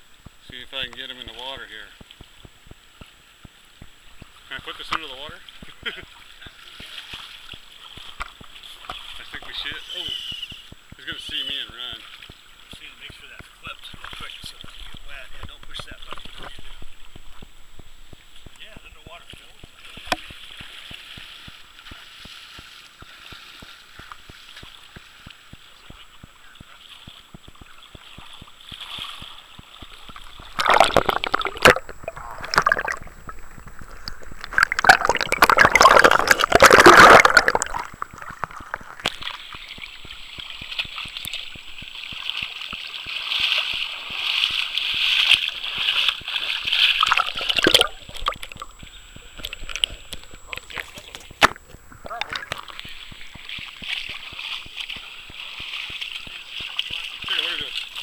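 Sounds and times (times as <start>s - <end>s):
water sloshing and gurgling: 0.0s - 58.0s.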